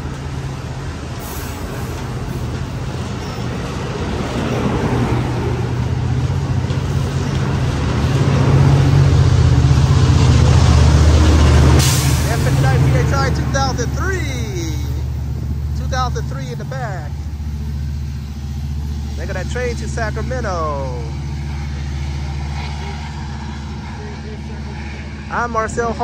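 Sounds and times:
deep diesel engine drone: 0:00.0 - 0:26.0
train wheels on rails: 0:00.0 - 0:26.0.

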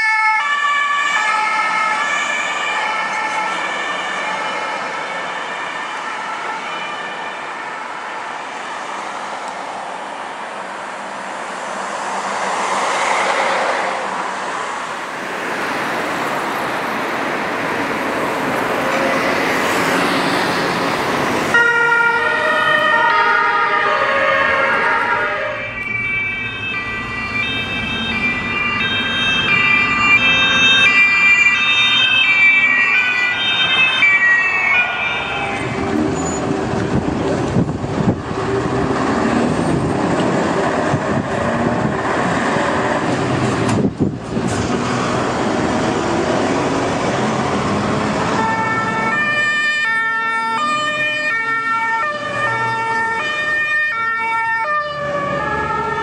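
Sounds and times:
two-tone police sirens: 0:00.0 - 0:10.6, 0:11.9 - 0:56.0
heavy trucks passing: 0:00.0 - 0:56.0.

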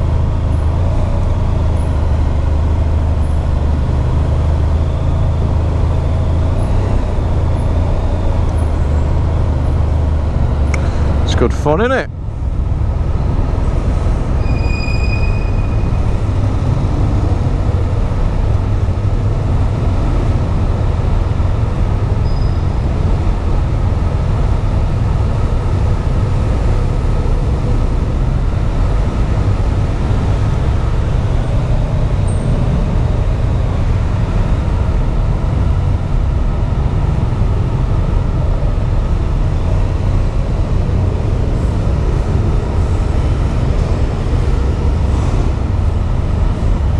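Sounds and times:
motorcycle engines rumbling: 0:00.0 - 0:46.9.

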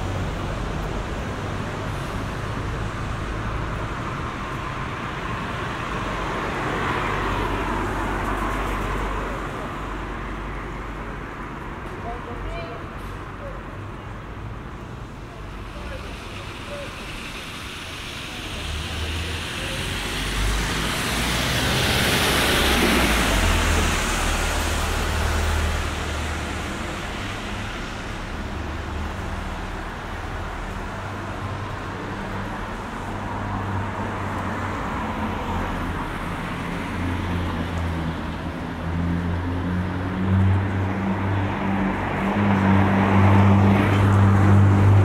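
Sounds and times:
tyres hissing on wet road: 0:15.0 - 0:45.0.

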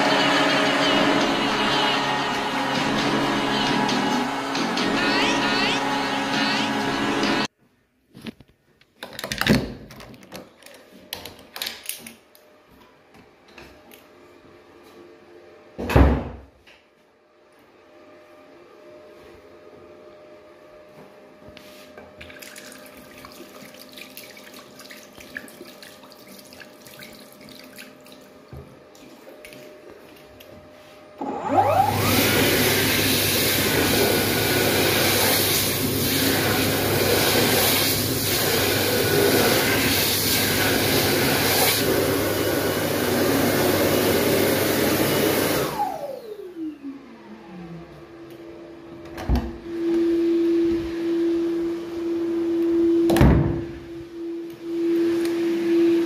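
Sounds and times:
hand dryer blowing: 0:00.0 - 0:07.5, 0:21.4 - 0:56.0.

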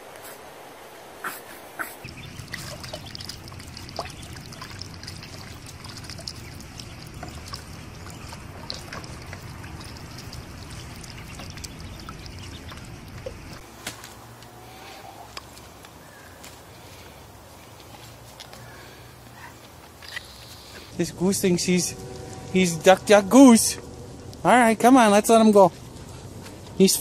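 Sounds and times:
water trickling and splashing: 0:02.0 - 0:13.7, 0:20.9 - 0:27.0
low rumble: 0:20.9 - 0:26.8.

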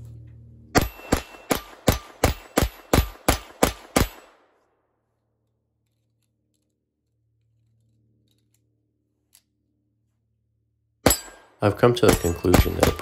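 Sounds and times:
pistol shots: 0:00.8 - 0:04.6, 0:11.0 - 0:13.0.

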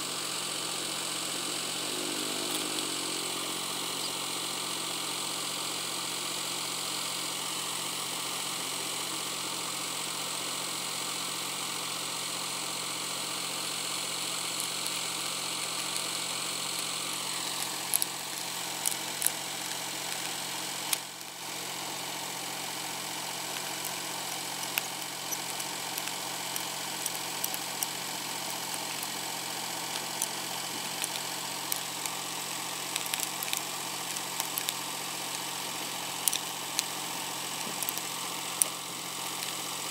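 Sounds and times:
engine running: 0:00.0 - 0:39.9.

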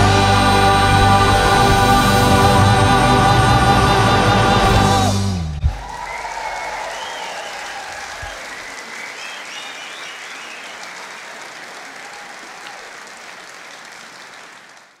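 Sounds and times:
audience applauding: 0:00.0 - 0:15.0
short whistles: 0:05.8 - 0:11.1.

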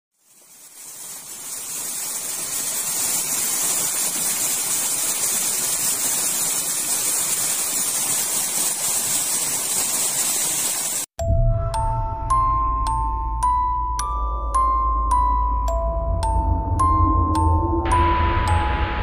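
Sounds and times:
small waterfall over rock: 0:00.1 - 0:11.1.

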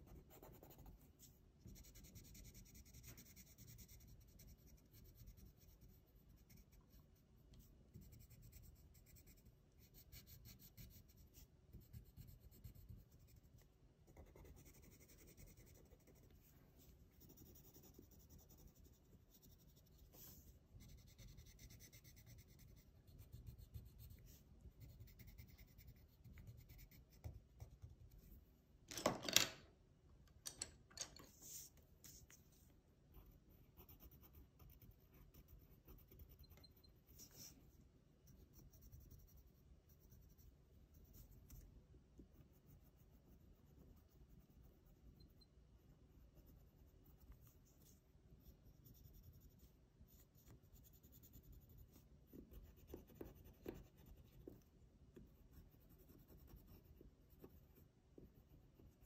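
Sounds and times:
pencil scratching on paper: 0:00.0 - 0:28.4, 0:31.3 - 0:59.0
pencil scrape: 0:31.2 - 0:37.6.

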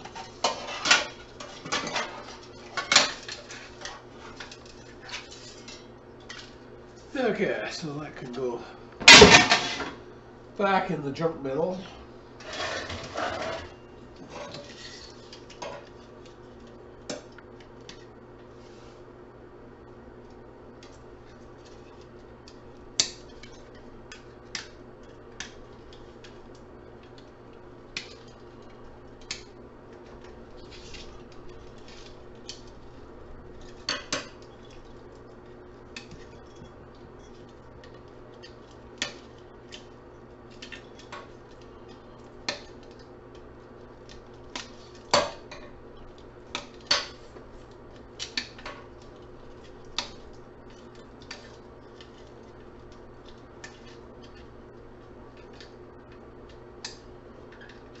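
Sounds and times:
steady low hum: 0:00.0 - 0:58.0.

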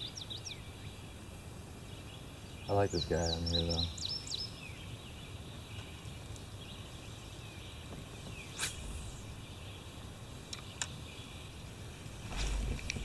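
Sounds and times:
faint bird chirp: 0:00.0 - 0:13.0
river hiss: 0:06.1 - 0:13.0.

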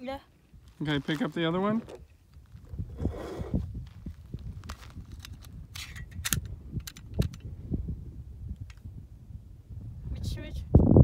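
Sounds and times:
wind rumble on microphone: 0:01.6 - 0:11.0
metallic clicks of pistol handling: 0:05.1 - 0:07.5.

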